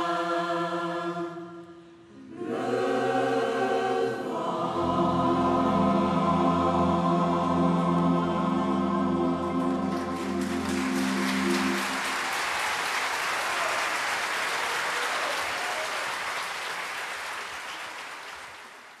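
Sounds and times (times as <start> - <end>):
choir holding final chord: 0.0 - 13.8
audience applauding: 9.5 - 19.0.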